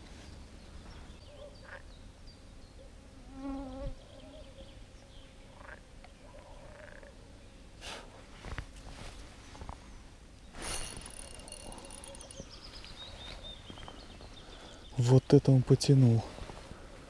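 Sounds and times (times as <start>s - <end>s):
frog croaking: 1.6s - 1.9s, 5.6s - 5.8s, 6.7s - 7.2s.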